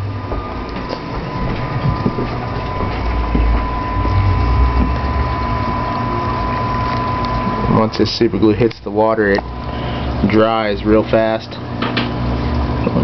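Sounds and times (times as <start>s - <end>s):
low rumble: 0.0s - 8.8s
aquarium equipment hum: 0.0s - 13.0s
thin steady whine: 0.0s - 13.0s.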